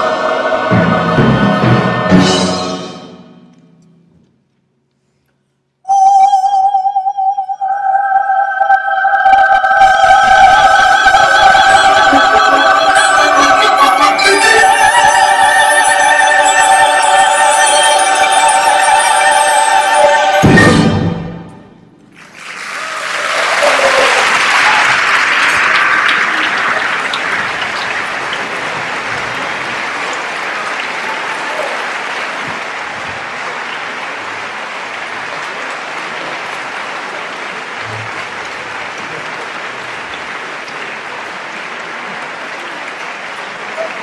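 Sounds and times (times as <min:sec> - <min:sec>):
choir and orchestra chord: 0:00.0 - 0:03.4, 0:07.4 - 0:21.8
audience applause: 0:09.6 - 0:15.5, 0:22.1 - 0:44.0.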